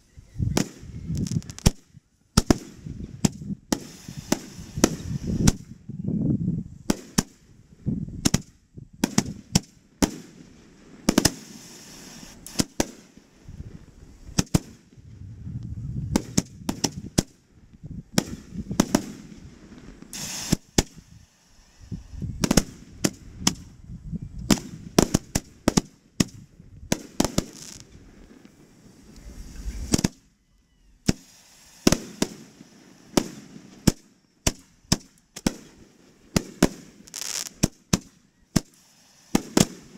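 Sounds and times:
fireworks bangs: 0.5 - 1.8, 2.4 - 5.7, 8.2 - 15.2, 16.1 - 17.4, 18.1 - 23.7, 24.5 - 30.3, 31.0 - 39.9
low rumble: 15.0 - 16.7, 29.0 - 30.0.

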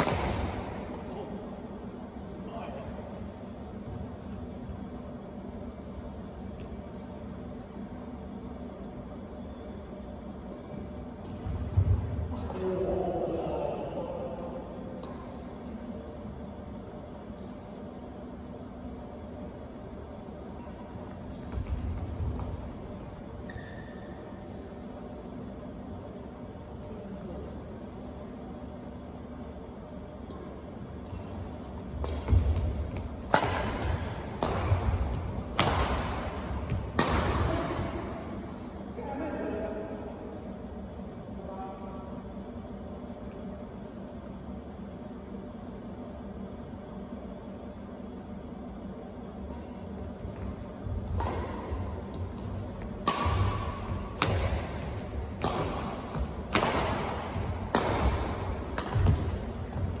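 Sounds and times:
racket hitting shuttlecock: 0.0 - 1.3, 15.0 - 16.2, 30.2 - 38.6, 49.5 - 60.0.

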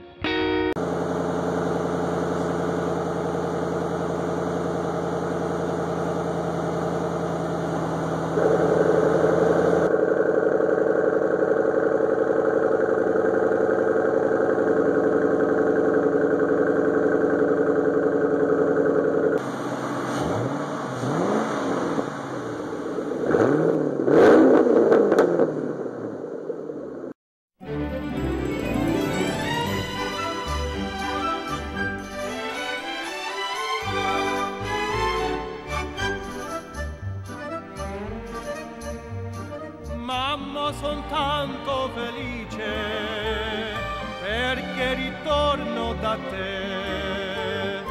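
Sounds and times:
car engine idling and revving: 0.8 - 27.1, 34.0 - 42.8.

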